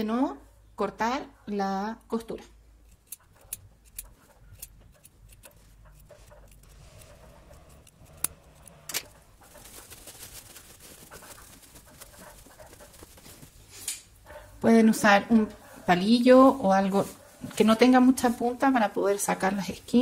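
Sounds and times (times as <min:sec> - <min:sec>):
scissors snipping fabric: 0:02.8 - 0:09.0
fabric rustling: 0:05.6 - 0:14.2.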